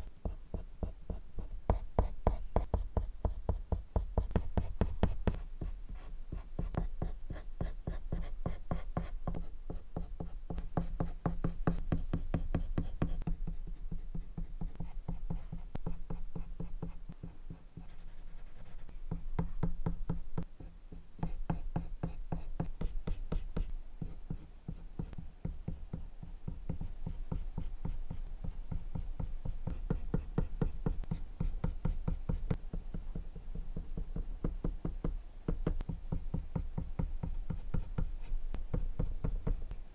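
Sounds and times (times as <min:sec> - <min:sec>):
pencil scratching on paper: 0:00.2 - 0:19.7.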